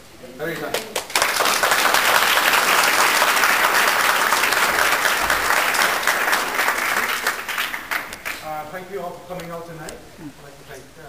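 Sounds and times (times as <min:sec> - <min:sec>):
crowd applauding: 0:00.6 - 0:08.7.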